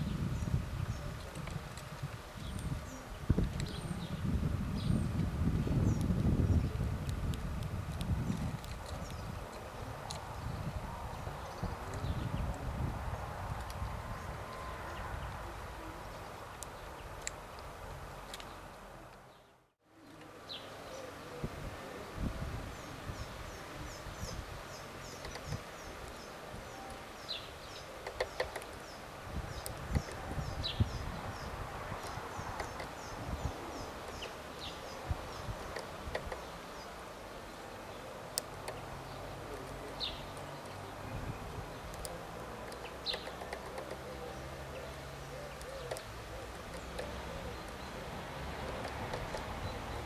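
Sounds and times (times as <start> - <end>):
small birds chirping: 0.0 - 50.0
bird pecking on wooden feeder: 28.0 - 28.9, 35.5 - 36.5, 41.7 - 44.4, 45.5 - 50.0.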